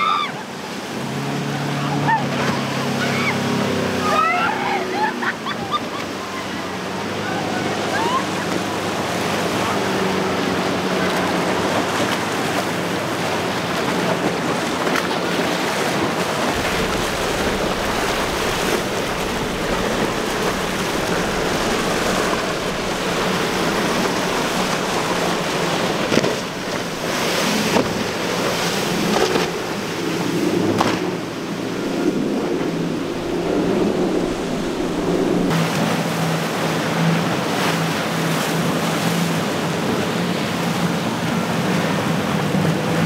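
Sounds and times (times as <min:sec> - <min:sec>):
boat engine drone: 0:00.0 - 0:43.0
waves and spray rushing: 0:00.0 - 0:43.0
wind buffeting microphone: 0:08.4 - 0:38.1.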